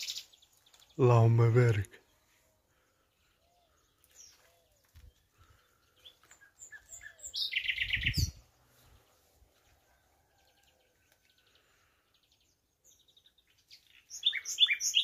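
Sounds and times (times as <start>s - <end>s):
nightingale singing: 0.0s - 8.8s, 12.1s - 15.0s.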